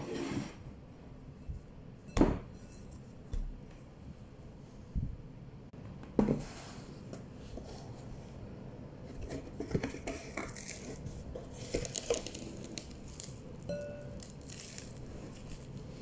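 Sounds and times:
food wrap box clicks and crinkling: 11.7s - 13.4s.

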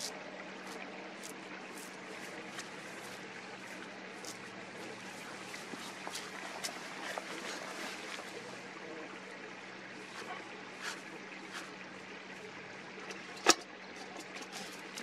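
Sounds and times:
metal lid snapping shut: 13.4s - 13.7s.

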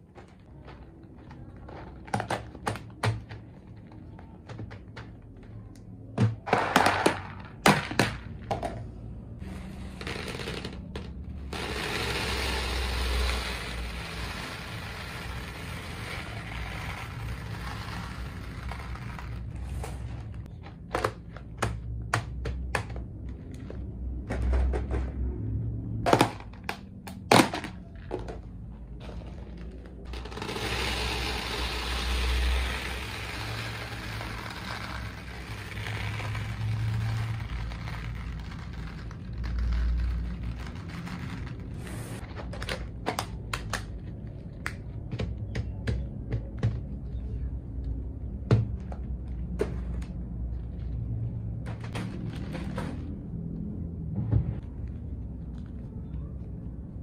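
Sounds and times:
plastic beads pouring into tub: 11.5s - 19.8s, 30.0s - 42.2s.

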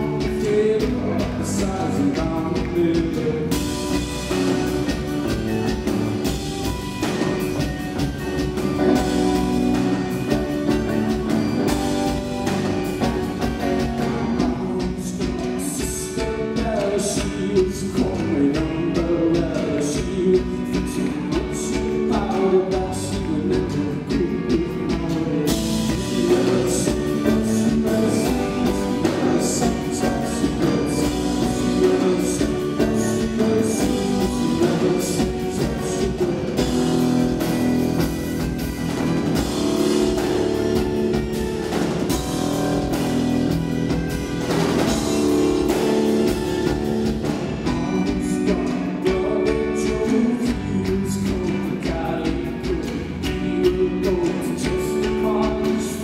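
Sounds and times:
man singing: 0.0s - 6.3s, 8.7s - 38.1s, 44.8s - 56.0s
live rock band playing: 0.0s - 56.0s.

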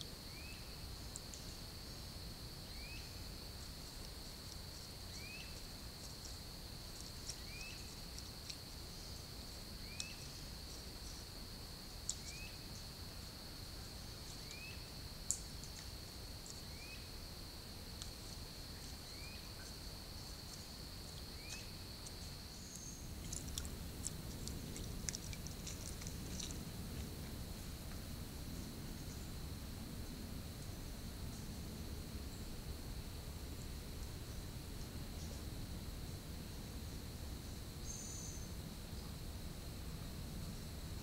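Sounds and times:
high-pitched insect trill: 0.0s - 29.7s, 30.4s - 41.0s
faint ticks: 3.6s - 9.2s, 9.8s - 11.3s, 12.0s - 12.9s, 15.2s - 16.7s, 18.0s - 28.1s.

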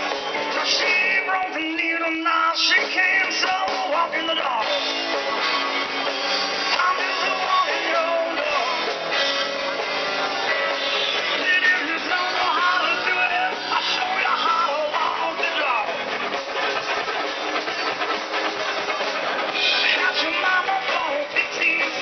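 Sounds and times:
person singing: 0.0s - 5.0s, 6.6s - 9.1s, 11.1s - 16.2s, 19.4s - 22.0s
drums: 0.0s - 22.0s
electric guitar: 0.0s - 22.0s.

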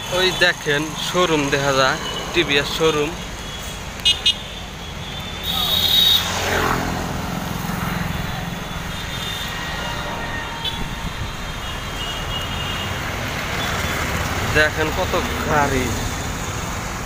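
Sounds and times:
passing vehicle: 0.0s - 17.0s
rickshaw ride rumble: 0.0s - 17.0s.

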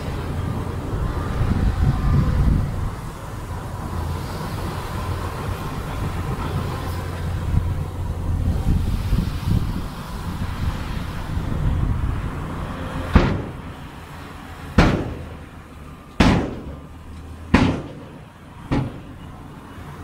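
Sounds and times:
diesel machine rumbling: 0.0s - 20.0s
loud ringing bangs: 13.1s - 13.8s, 14.7s - 15.6s, 16.2s - 19.3s.

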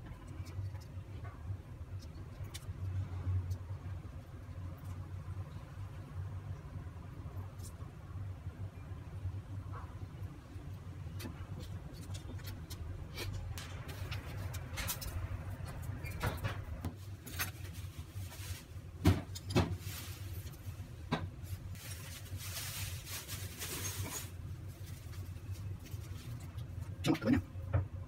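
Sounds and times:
spice shaking rustle: 21.6s - 26.8s.

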